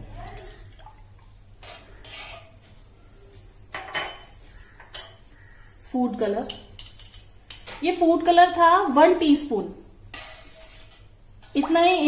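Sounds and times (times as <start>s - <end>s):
spoon stirring rice in water: 0.3s - 2.8s, 10.1s - 11.9s
spoon clinking against metal pot: 3.2s - 7.7s.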